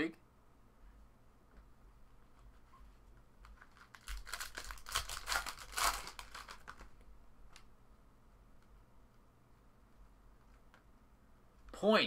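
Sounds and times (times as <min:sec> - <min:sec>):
cards being handled: 0:03.4 - 0:06.9
foil wrapper crinkling: 0:03.4 - 0:06.9.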